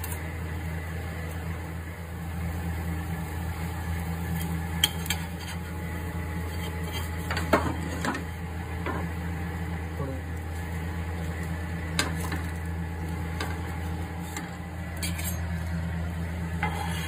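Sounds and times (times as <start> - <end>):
steady low hum: 0.0 - 17.0
metal utensils clinking on steel: 15.0 - 15.5.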